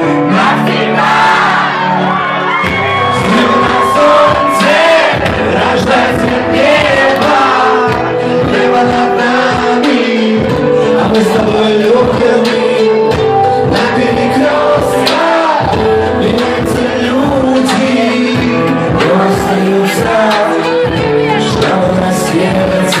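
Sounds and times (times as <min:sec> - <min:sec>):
man singing into microphone: 0:00.0 - 0:01.8, 0:02.8 - 0:23.0
pop backing track with beat: 0:00.0 - 0:23.0.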